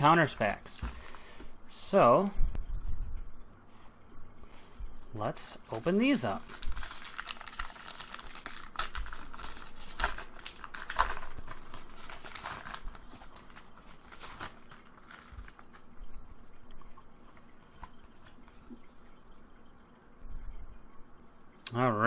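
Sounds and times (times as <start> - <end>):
cards rustling: 5.7 - 15.9
foil wrapper tearing and crinkling: 6.3 - 15.9.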